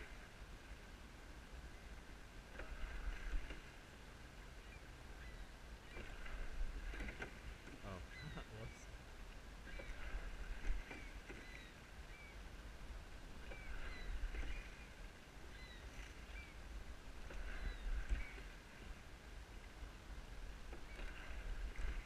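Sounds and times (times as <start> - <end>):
water noise: 0.0 - 22.0
wind rumbling on microphone: 4.9 - 22.0.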